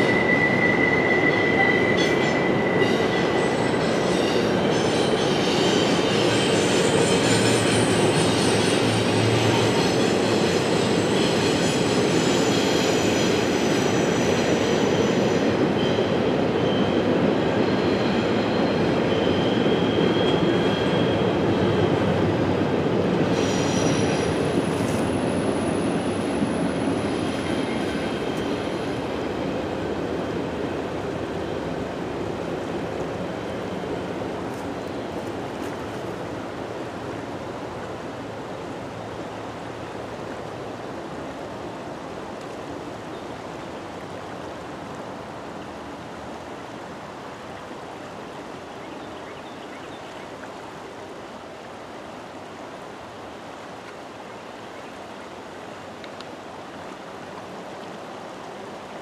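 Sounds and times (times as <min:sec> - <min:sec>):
freight train rumbling: 0:00.0 - 0:40.8.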